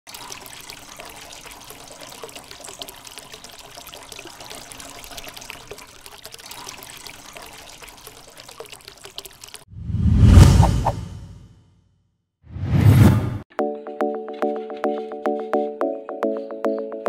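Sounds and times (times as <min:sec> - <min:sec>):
fountain water splashing: 0:00.1 - 0:09.7.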